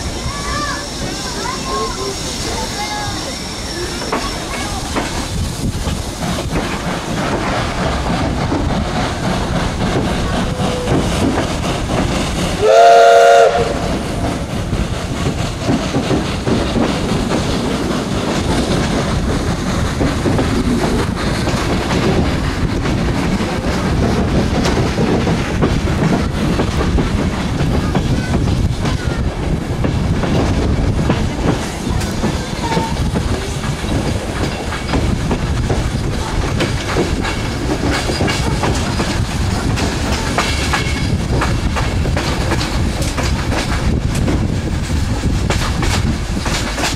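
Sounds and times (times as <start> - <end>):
train wheels on track: 0.0 - 46.9
steam whistle blast: 12.6 - 13.9.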